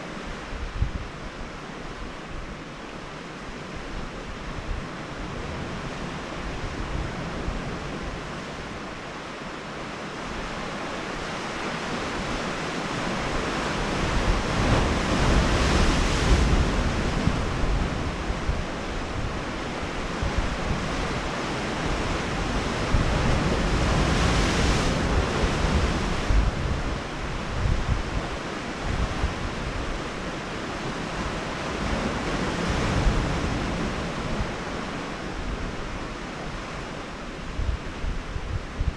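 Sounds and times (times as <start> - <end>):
wind buffeting microphone: 0.2 - 2.6, 11.8 - 38.9
surf washing against rocks: 10.8 - 37.2.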